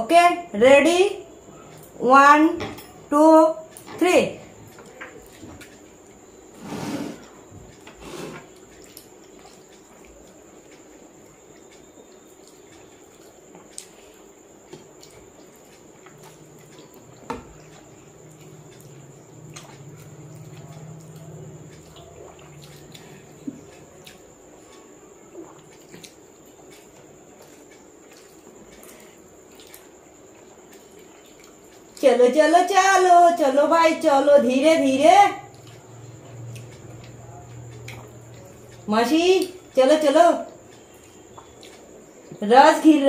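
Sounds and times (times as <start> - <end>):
wet squishy chewing: 14.7 - 24.7, 25.3 - 32.0, 35.5 - 39.8, 40.5 - 42.4.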